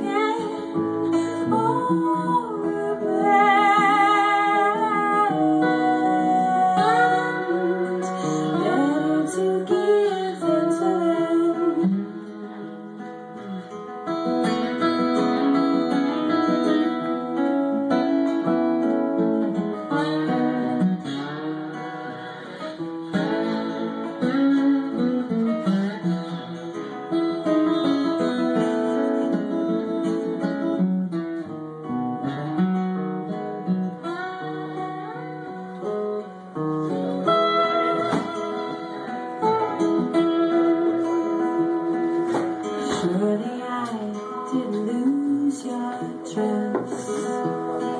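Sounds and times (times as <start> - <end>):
acoustic guitars playing: 0.0 - 47.9.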